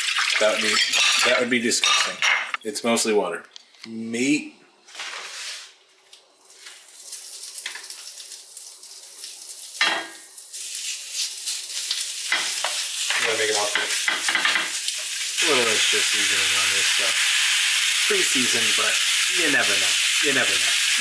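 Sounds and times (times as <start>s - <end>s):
meat sizzling in a skillet: 6.5s - 21.0s.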